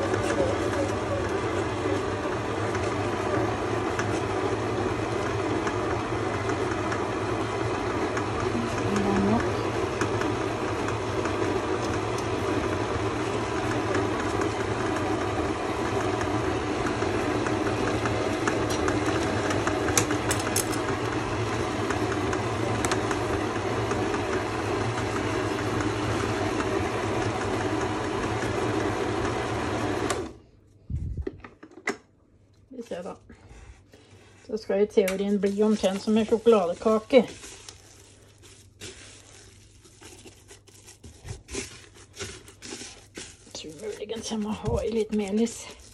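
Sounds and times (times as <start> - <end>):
stand mixer running: 0.0 - 30.4.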